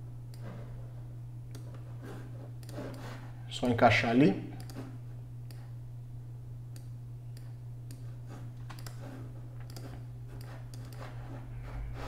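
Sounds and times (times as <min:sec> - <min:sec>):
steady low hum: 0:00.0 - 0:12.0
computer mouse clicks: 0:01.5 - 0:01.8, 0:02.6 - 0:03.1, 0:04.6 - 0:04.9, 0:05.5 - 0:05.7, 0:06.7 - 0:09.0, 0:09.6 - 0:11.1.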